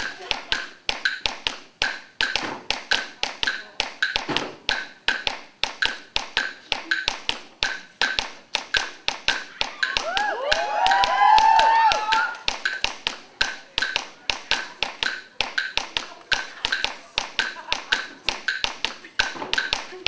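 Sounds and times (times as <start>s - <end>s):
sharp percussion clicks: 0.0s - 20.0s
voices whooping and cheering: 9.5s - 12.5s.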